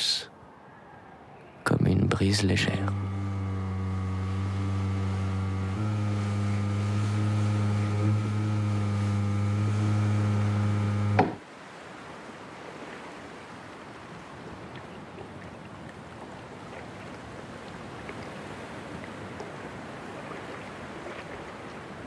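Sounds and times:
faint steady hiss: 0.0s - 14.8s
low drone of held tones: 0.8s - 11.4s.

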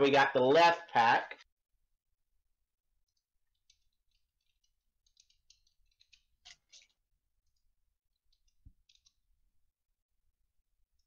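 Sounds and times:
plastic wrapper crinkling: 3.1s - 7.6s.

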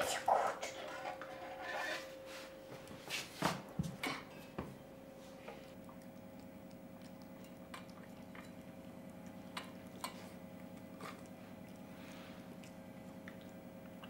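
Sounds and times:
steady low hum: 0.0s - 14.0s
dog eating from metal bowl: 5.9s - 14.0s.

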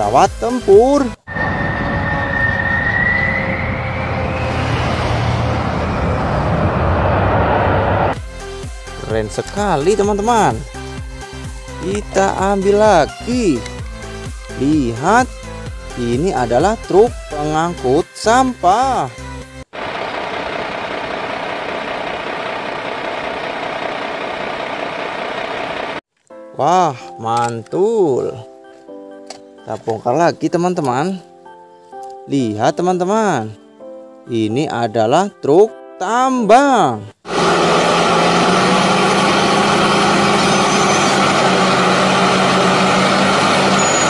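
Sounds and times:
jet engine roar with rising whine: 1.3s - 8.2s, 19.8s - 26.0s, 37.3s - 44.0s.

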